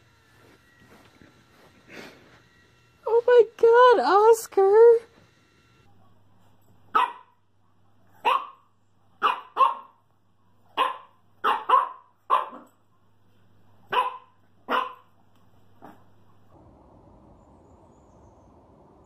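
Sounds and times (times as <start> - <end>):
dog barking: 6.9 - 10.0, 10.7 - 12.7, 13.9 - 15.1.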